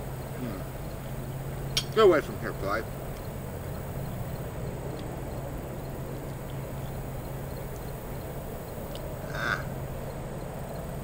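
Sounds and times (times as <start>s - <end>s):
steady low hum: 0.0s - 11.0s
faint ticks: 7.5s - 8.0s, 8.6s - 9.6s
short animal call: 9.2s - 9.7s.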